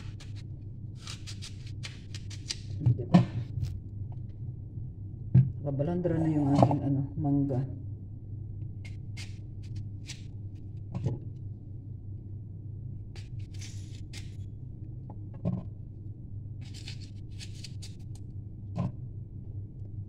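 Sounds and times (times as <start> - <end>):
knife cutting apple: 0.0 - 3.3, 8.9 - 10.3, 13.2 - 14.4, 16.6 - 18.2
low hum: 0.0 - 20.0.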